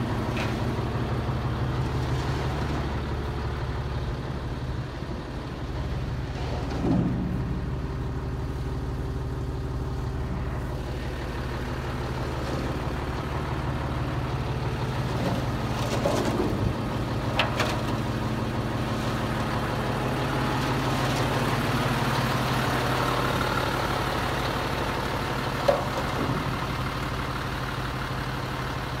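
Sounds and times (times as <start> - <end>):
diesel engine idling: 0.0 - 29.0
metal clanks and knocks: 6.3 - 7.7, 17.3 - 18.0, 25.6 - 26.5.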